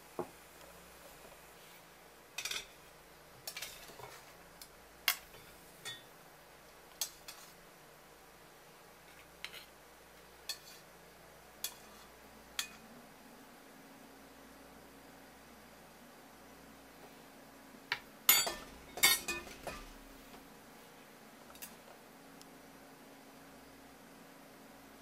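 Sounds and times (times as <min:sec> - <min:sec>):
metal spoon clinking on dishes: 0:02.4 - 0:02.8, 0:03.4 - 0:04.1, 0:05.1 - 0:06.1, 0:11.6 - 0:12.8, 0:17.9 - 0:20.0.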